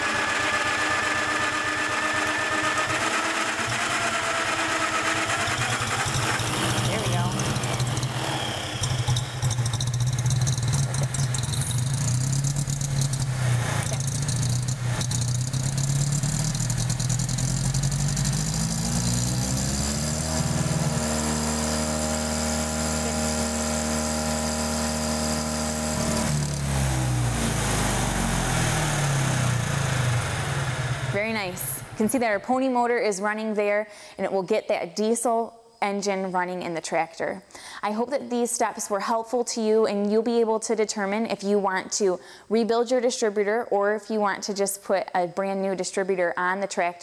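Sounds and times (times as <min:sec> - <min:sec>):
small gasoline engine running: 0:00.0 - 0:32.2.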